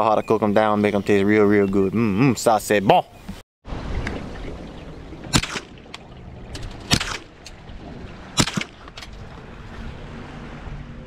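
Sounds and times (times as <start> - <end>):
boat motor rumbling: 3.8 - 11.0
shotgun shots with echo: 5.3 - 5.8, 6.9 - 7.3, 8.4 - 8.8.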